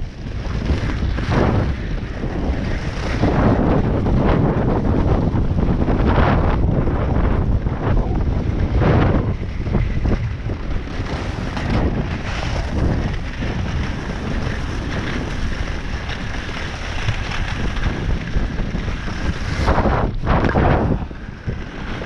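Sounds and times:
ski edges scraping: 0:00.0 - 0:22.0
wind buffeting microphone: 0:00.0 - 0:22.0
skis hissing over snow: 0:10.8 - 0:22.0.

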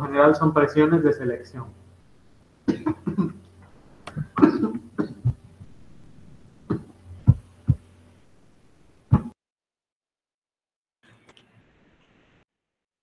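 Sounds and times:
man coughing: 0:02.7 - 0:03.4, 0:04.1 - 0:05.4, 0:06.7 - 0:07.0.

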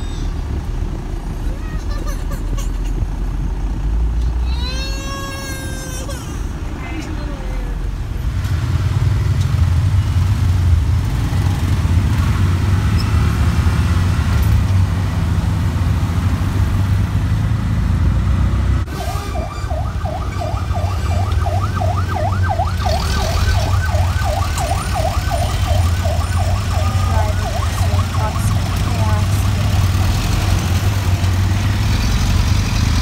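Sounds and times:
auto-rickshaw engine rumble: 0:00.0 - 0:33.0
fast yelping siren: 0:18.9 - 0:29.2.

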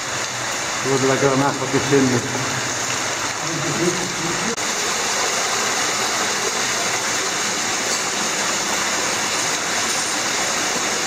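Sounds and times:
waterfall splashing into pool: 0:00.0 - 0:11.0.

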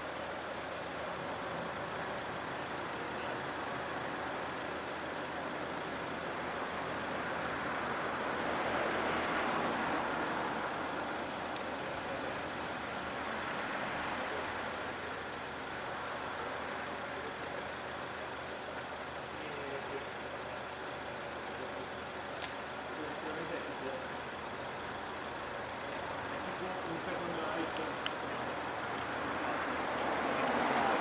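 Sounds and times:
passing road vehicle rushing: 0:06.5 - 0:15.0, 0:26.1 - 0:31.0.

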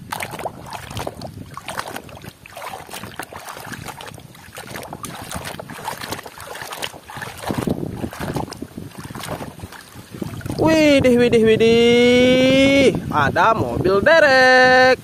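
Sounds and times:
water sloshing in a tub: 0:00.0 - 0:11.0.

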